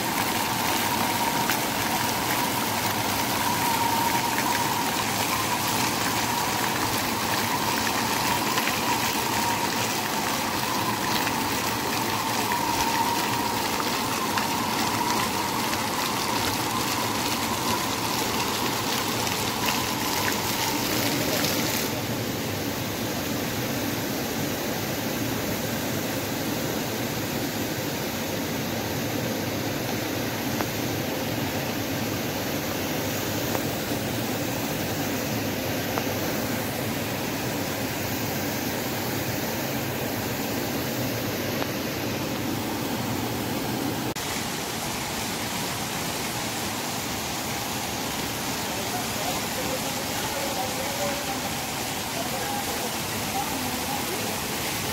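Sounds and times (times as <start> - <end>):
fountain water splashing: 0.0 - 54.9.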